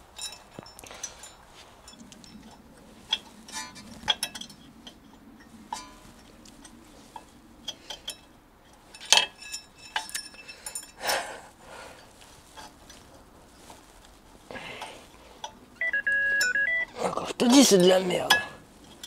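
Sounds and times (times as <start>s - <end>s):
light metallic clinks: 0.0s - 11.2s
metal scrape: 0.2s - 15.6s.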